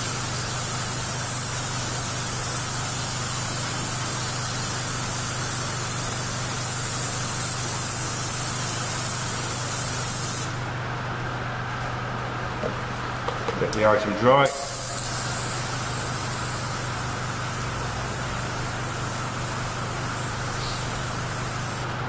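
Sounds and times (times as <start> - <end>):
compressor humming: 7.6 - 22.0
airbrush hissing: 14.5 - 21.8.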